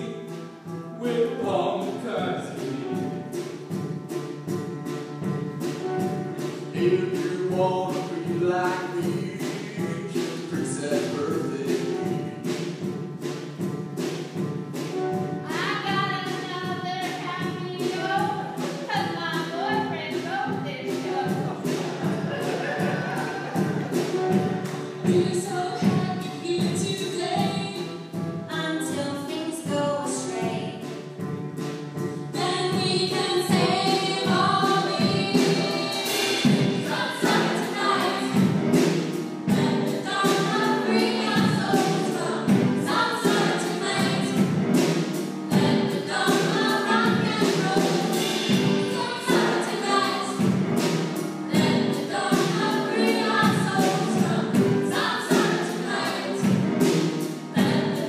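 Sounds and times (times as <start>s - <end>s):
choir singing over a beat: 20.9s - 26.2s, 33.0s - 58.0s.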